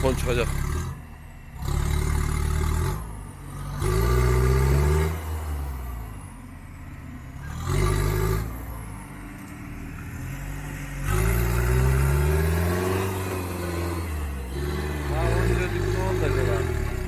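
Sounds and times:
pickup engine revving: 0.0 - 6.2, 7.3 - 17.0.

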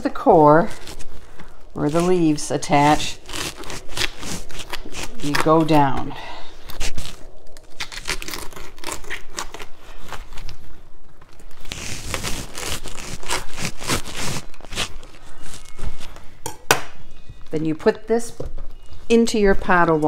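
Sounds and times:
knife crunching through cabbage: 0.6 - 10.7, 11.4 - 16.1.

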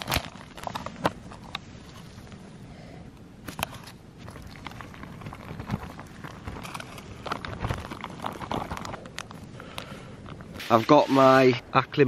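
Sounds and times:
food pouch crinkling: 0.0 - 1.6, 3.5 - 10.6.

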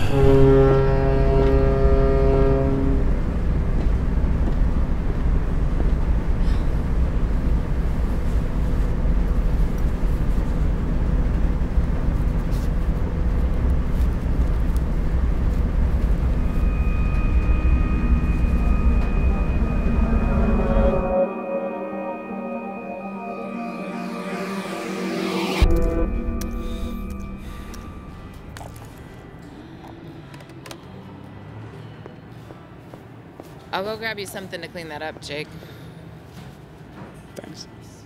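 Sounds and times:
ship's horn blast: 0.0 - 3.2, 15.5 - 29.0
ferry engine rumble: 0.0 - 31.4
sustained music tones: 15.0 - 30.1.

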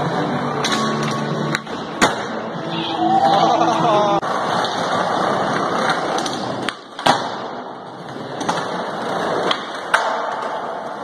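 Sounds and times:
skateboard wheels rolling on concrete: 0.0 - 11.0
skateboard clacking on ground: 4.4 - 11.0.

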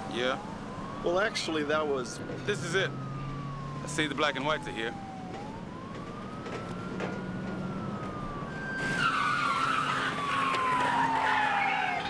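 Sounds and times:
car tyres squealing: 8.8 - 12.0.

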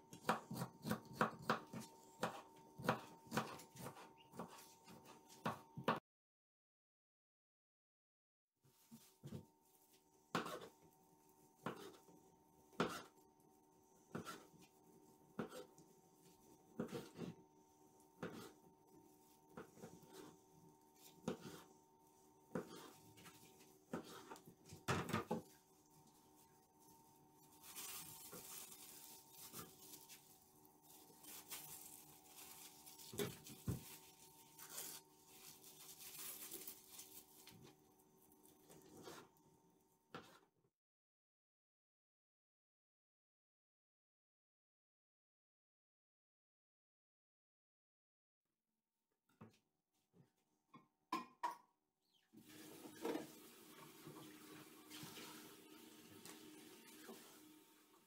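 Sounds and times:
plastic bag crinkling: 27.5 - 37.6.

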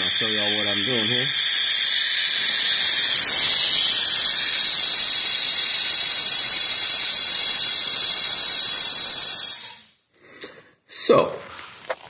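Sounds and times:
compressed air hissing: 0.0 - 10.6.

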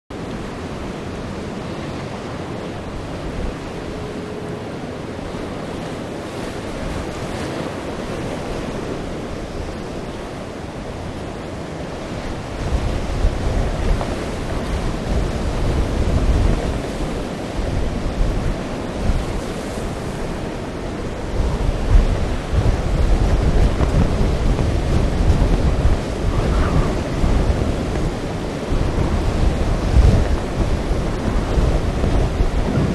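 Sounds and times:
storm surf: 0.1 - 32.9
wind buffeting microphone: 0.1 - 32.9.

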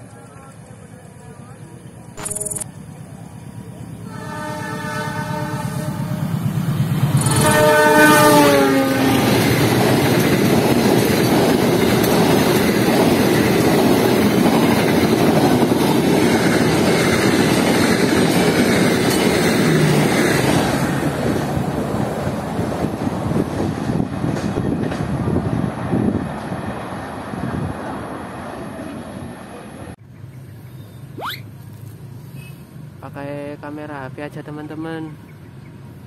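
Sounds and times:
train coaches rushing past: 2.7 - 30.0
train horn: 4.0 - 6.4, 7.2 - 9.4
wheels clattering on rails: 9.2 - 25.6.

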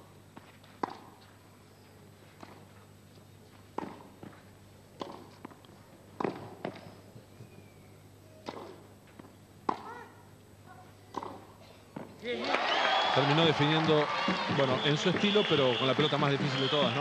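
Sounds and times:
racket striking tennis ball: 0.8 - 1.2, 3.8 - 4.3, 5.0 - 5.6, 6.2 - 6.8, 8.4 - 8.8, 9.6 - 10.0, 11.1 - 12.1.

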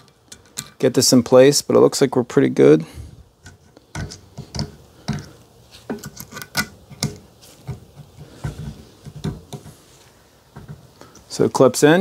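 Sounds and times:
metal clip clicking and scraping: 3.4 - 7.8.

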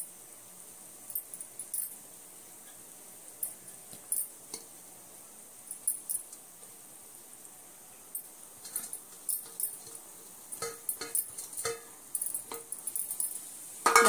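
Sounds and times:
metal spoon clinking on pot: 8.2 - 10.0, 10.6 - 14.0.

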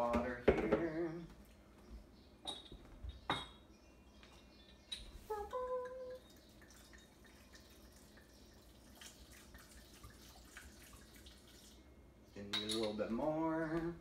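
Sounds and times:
water trickling into blender: 5.8 - 11.9.

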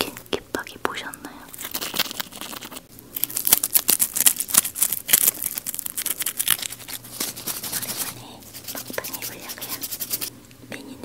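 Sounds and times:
crunching fried chicken: 1.4 - 9.0.

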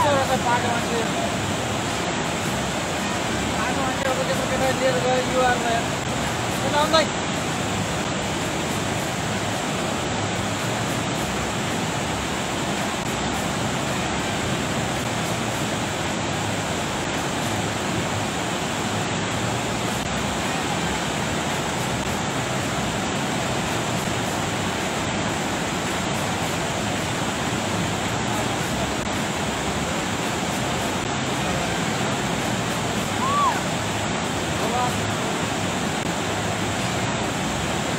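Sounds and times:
river rushing: 0.0 - 37.9.

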